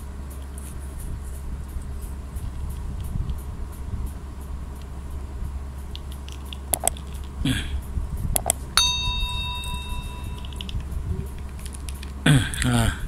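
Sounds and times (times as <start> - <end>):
mouse clicks: 6.4 - 7.0
notification bell ding: 8.8 - 10.7.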